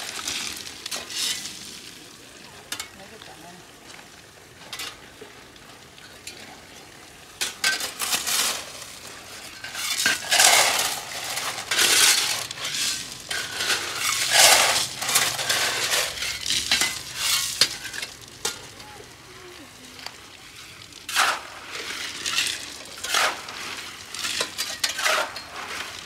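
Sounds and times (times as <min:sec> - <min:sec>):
shovels scraping into pebbles: 0:00.0 - 0:02.0, 0:07.4 - 0:26.0.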